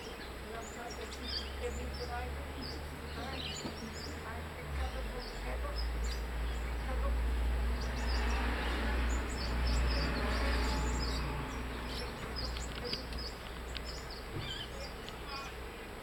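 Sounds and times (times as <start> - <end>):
high bird chirps: 7.7 - 15.6.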